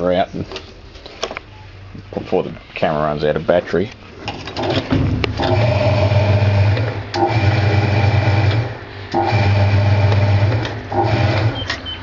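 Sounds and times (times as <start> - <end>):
washing machine motor hum: 4.6 - 12.0.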